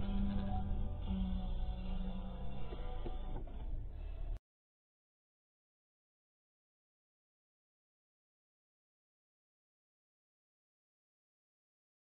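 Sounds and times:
background music: 0.0s - 4.4s.

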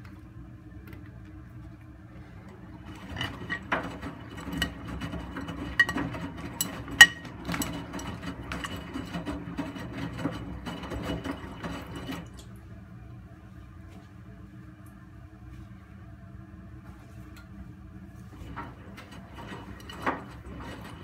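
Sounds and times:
washing machine drum turning: 2.7s - 12.4s, 18.4s - 21.0s.

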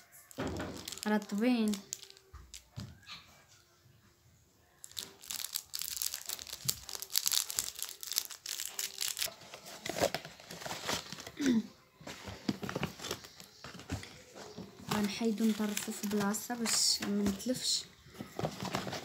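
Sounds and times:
plastic packaging crinkling: 0.0s - 2.8s, 4.8s - 11.6s, 14.5s - 19.0s.

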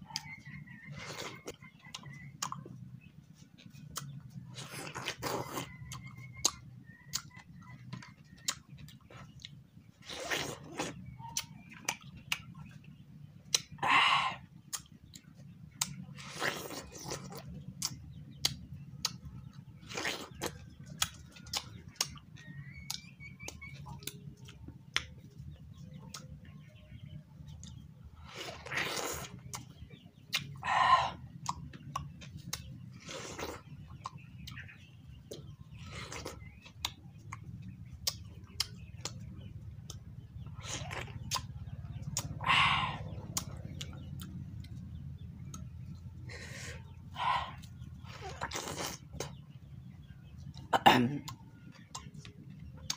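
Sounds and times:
steady low hum: 0.0s - 52.9s
watermelon chewing and crunching: 0.0s - 52.9s
wet mouth clicks and smacks: 17.8s - 19.2s, 38.0s - 40.0s.

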